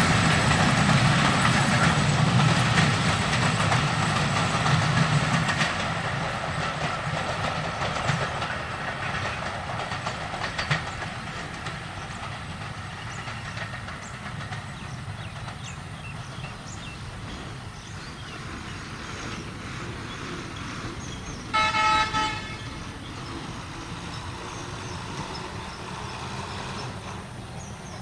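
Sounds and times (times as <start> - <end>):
rumble of engines and traffic: 0.0 - 28.0
vehicle horn honking: 21.5 - 22.8.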